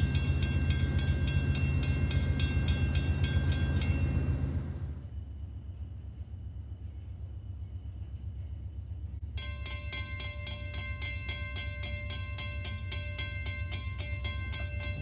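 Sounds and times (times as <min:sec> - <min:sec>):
railroad crossing bell ringing: 0:00.0 - 0:05.1, 0:09.2 - 0:15.0
low steady rumble: 0:00.0 - 0:15.0.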